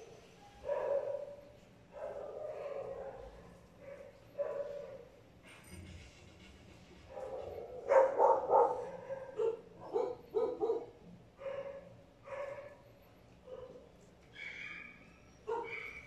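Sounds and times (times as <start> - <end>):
dog barking: 0.6 - 5.2, 7.1 - 13.9, 15.4 - 16.0.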